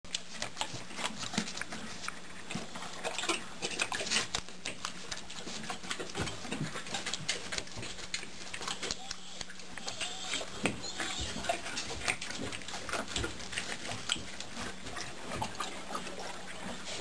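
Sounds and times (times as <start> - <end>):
horse licking and lip-smacking: 0.1 - 17.0.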